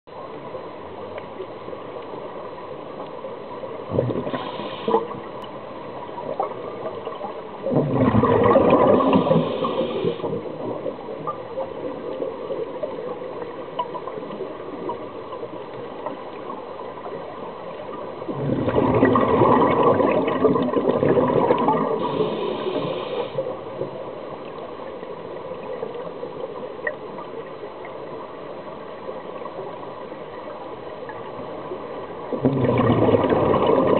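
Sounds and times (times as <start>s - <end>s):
steady underwater hiss: 0.2s - 33.9s
exhaled bubbles rushing: 3.9s - 5.3s, 5.9s - 13.0s, 18.2s - 23.0s, 32.2s - 33.9s.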